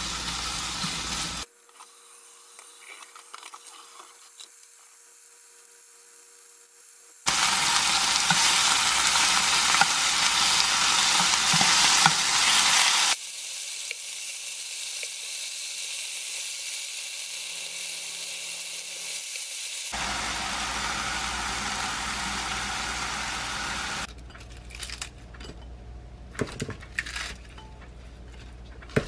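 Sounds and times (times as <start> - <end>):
beef sizzling in a frying pan: 0.0 - 1.5, 7.3 - 24.1.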